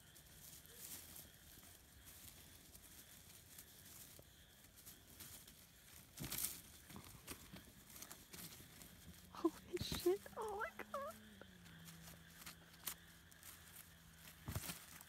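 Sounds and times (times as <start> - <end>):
animals rustling through dry undergrowth: 0.0 - 15.0.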